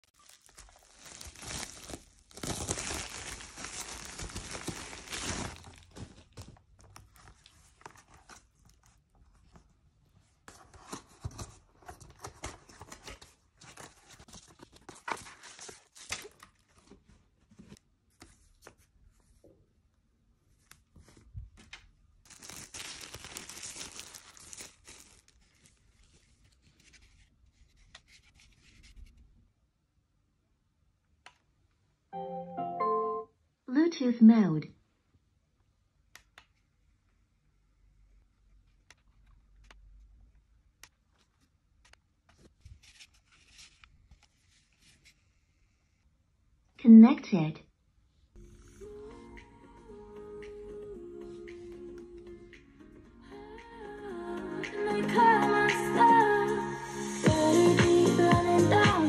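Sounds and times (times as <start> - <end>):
plastic packaging crinkling: 0.0 - 9.0, 22.2 - 26.2.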